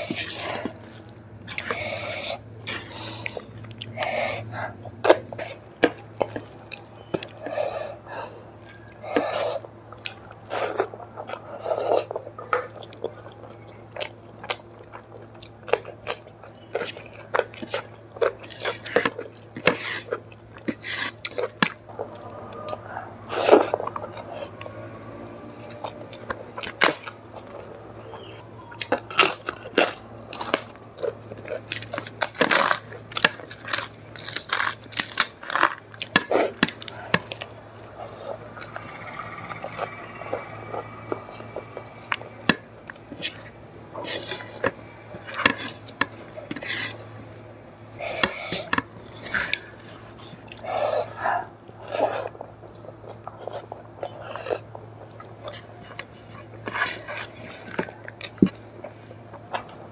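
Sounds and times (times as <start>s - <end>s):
crunchy chewing: 0.0s - 59.9s
fingers mixing rice on a plate: 48.1s - 59.8s.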